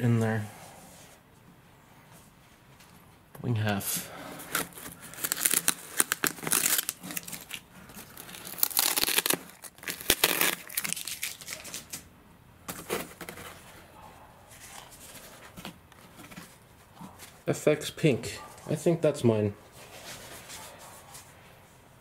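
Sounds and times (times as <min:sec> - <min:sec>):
foil insulation crinkling and rustling: 0:04.4 - 0:12.0.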